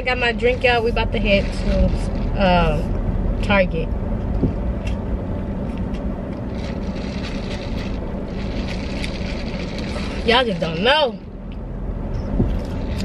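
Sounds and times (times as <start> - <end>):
car engine rumble: 0.0 - 13.0
road noise inside car: 0.0 - 13.0.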